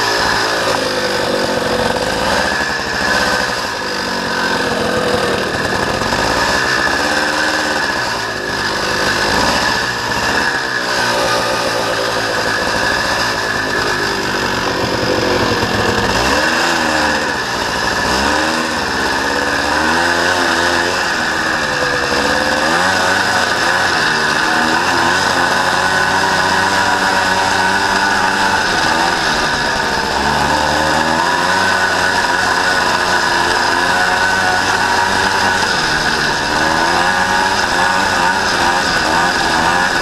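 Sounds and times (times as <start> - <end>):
motorcycle engine revving: 0.0 - 40.0.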